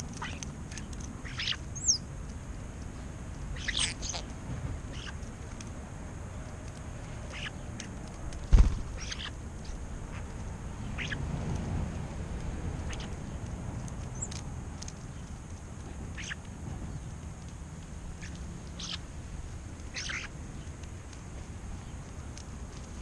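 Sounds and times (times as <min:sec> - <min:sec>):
starlings calling: 0:00.0 - 0:02.1, 0:03.5 - 0:05.2, 0:07.2 - 0:11.3, 0:12.8 - 0:13.4, 0:14.0 - 0:14.4, 0:16.0 - 0:17.1, 0:18.2 - 0:19.1, 0:19.8 - 0:20.7.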